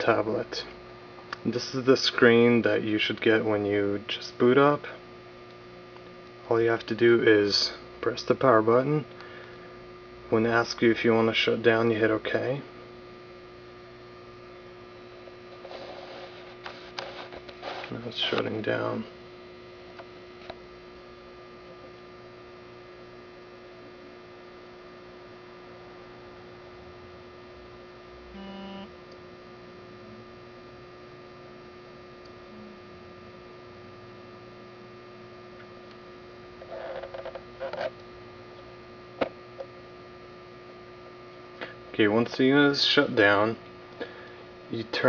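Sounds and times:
electrical mains hum: 0.0 - 45.0
short buzzy tone: 28.2 - 29.0.

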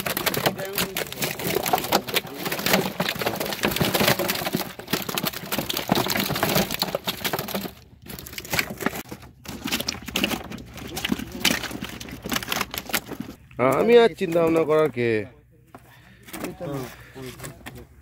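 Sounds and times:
fish slapping in plastic drum: 0.0 - 13.4.

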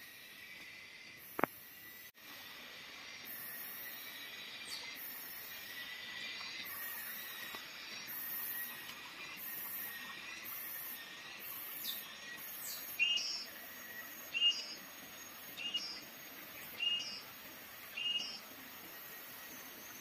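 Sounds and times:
faint outdoor hiss: 0.0 - 20.0
high pulsing insect buzz: 0.0 - 20.0
bird chirping call: 17.9 - 18.4.

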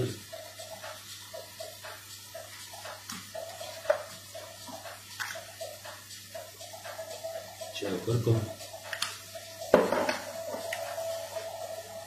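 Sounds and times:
sauce sizzling in a frying pan: 0.0 - 12.0.

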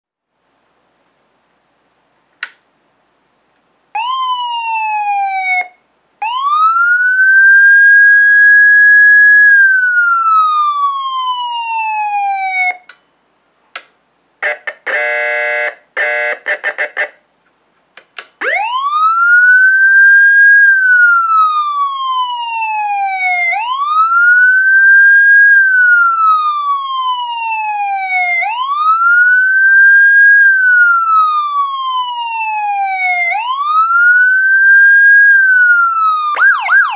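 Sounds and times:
buzzing horn blasts: 14.4 - 17.2
electronic siren wailing: 18.4 - 36.9.

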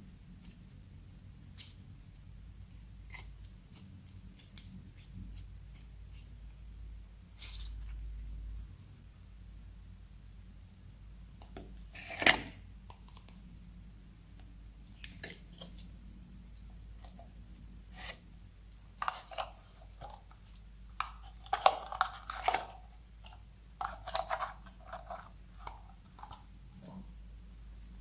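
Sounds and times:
plastic jar crinkling: 19.0 - 26.8.

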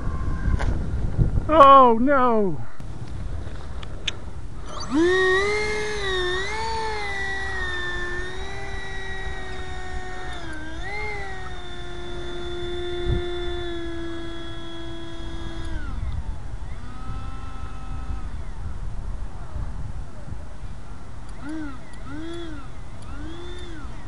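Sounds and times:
wind rumble on microphone: 0.0 - 24.0
model plane motor whine: 4.4 - 19.6, 21.1 - 24.0.

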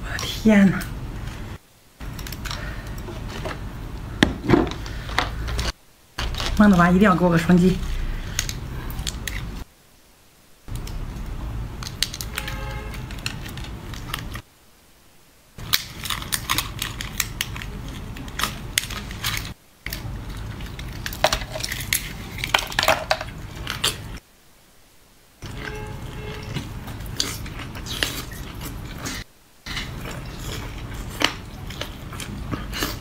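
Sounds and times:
wet clicks and crunches: 15.6 - 24.2.

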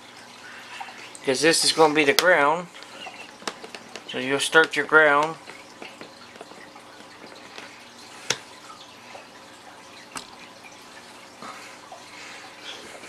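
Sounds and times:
faint steady hum: 0.0 - 13.0
clicks and taps of handling wires: 2.2 - 7.7.

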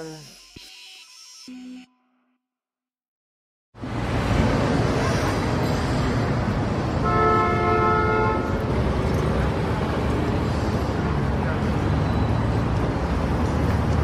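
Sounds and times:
road traffic engine rumble: 3.8 - 14.0
vehicle horn: 7.0 - 8.6.

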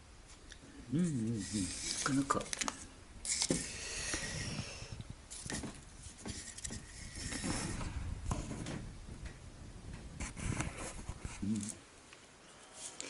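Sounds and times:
handling noise rustling and knocks: 5.3 - 11.4.

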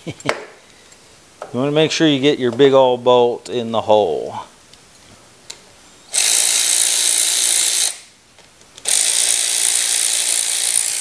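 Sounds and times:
cordless power ratchet running: 6.1 - 8.0, 8.8 - 11.0.

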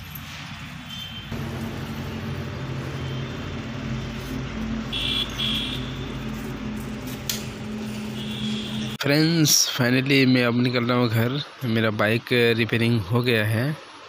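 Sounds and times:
engine humming: 1.3 - 9.0.

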